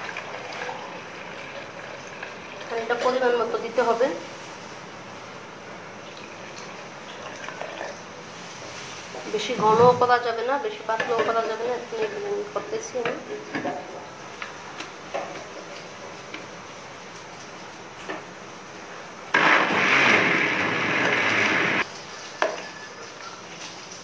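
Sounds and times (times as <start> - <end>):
electric blender motor running: 19.4 - 21.8.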